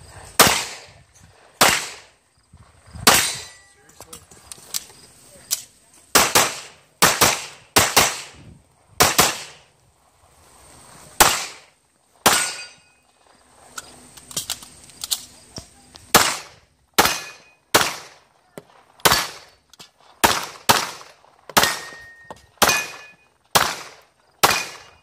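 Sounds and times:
pistol shots: 0:00.4 - 0:00.9, 0:01.6 - 0:02.1, 0:03.0 - 0:03.6, 0:06.1 - 0:08.4, 0:09.0 - 0:09.6, 0:11.2 - 0:12.8, 0:16.1 - 0:18.2, 0:19.0 - 0:19.6, 0:20.2 - 0:25.0.

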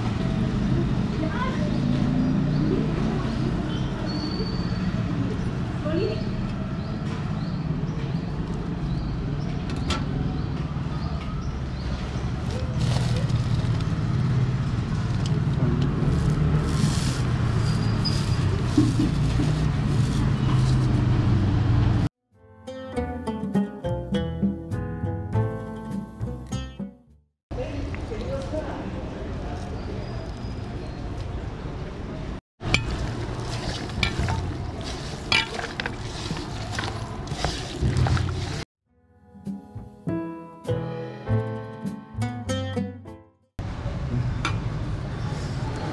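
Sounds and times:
hand squelching marinade: 0:32.7 - 0:38.6.

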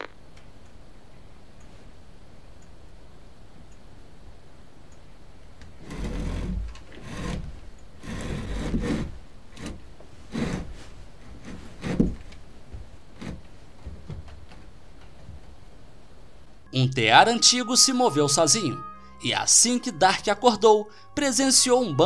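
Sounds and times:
wooden spinning wheel creaking: 0:05.8 - 0:10.7.

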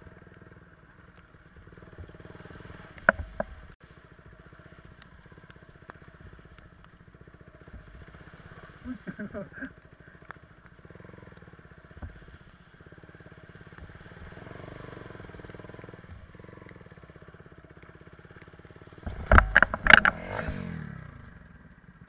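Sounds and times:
motorcycle engine running: 0:00.0 - 0:22.0
motorcycle crashing: 0:19.0 - 0:21.2.

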